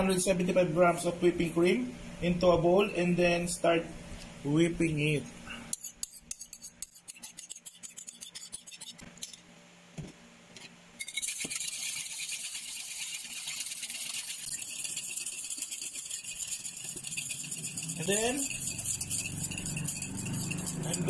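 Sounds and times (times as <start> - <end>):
wire whisk rattling in glass bowl: 11.0 - 21.0.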